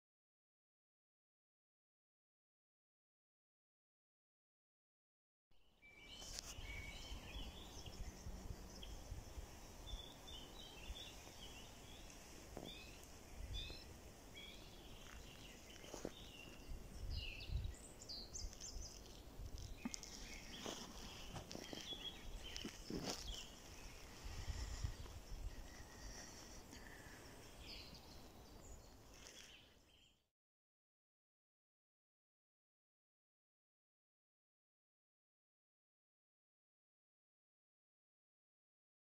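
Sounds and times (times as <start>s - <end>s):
songbirds chirping: 5.6s - 30.2s.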